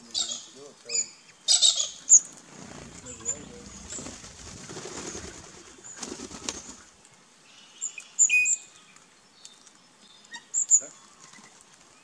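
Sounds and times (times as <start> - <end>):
bird wings flapping: 2.3 - 7.0.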